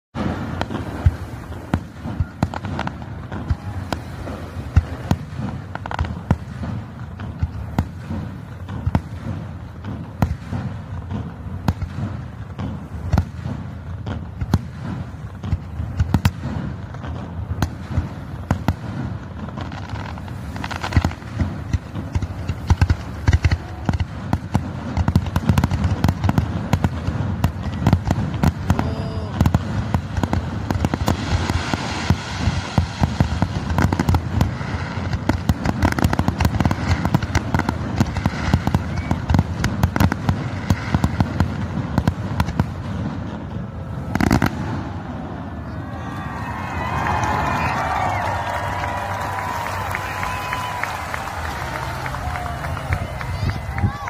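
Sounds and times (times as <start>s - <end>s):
fireworks bursting with bangs and pops: 0.1s - 54.0s.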